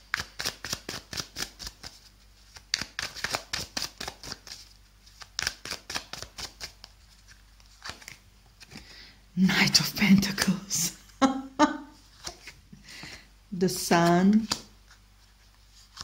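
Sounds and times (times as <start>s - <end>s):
cards being shuffled: 0.1s - 8.9s, 12.0s - 13.2s, 13.8s - 16.0s.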